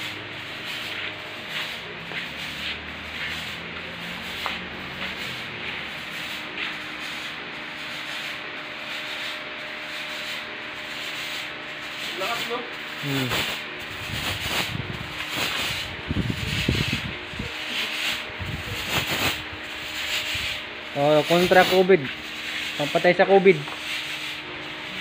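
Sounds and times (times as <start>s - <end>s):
fogger hissing: 0.0s - 25.0s
low rumbling: 13.8s - 17.6s.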